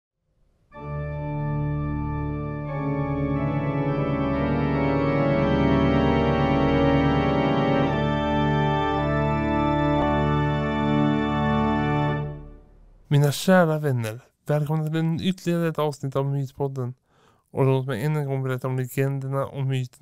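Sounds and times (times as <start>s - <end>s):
organ-like held chords: 0.7s - 13.0s.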